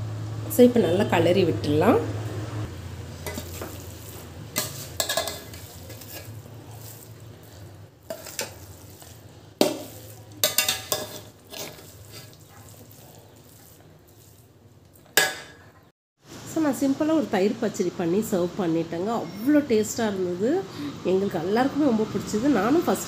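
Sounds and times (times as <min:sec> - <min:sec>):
metal spatula scraping a pot: 0:03.2 - 0:14.5.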